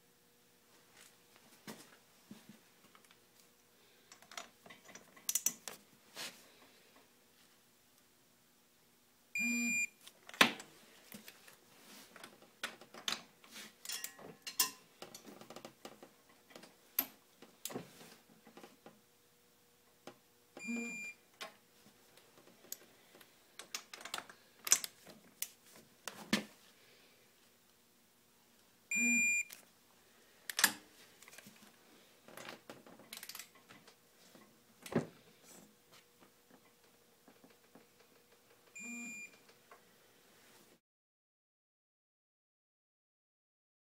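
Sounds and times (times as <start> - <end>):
short electronic beeps: 9.4 - 9.9, 20.6 - 21.2, 28.9 - 29.5, 38.8 - 39.3.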